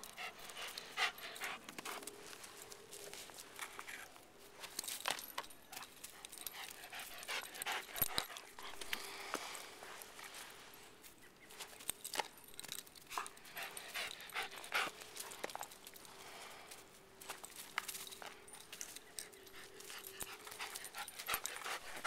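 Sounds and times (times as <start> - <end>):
dog panting hard: 0.0 - 2.1, 6.3 - 8.8, 13.1 - 15.5, 19.2 - 22.0
rustling over grass and leaves: 0.1 - 22.0.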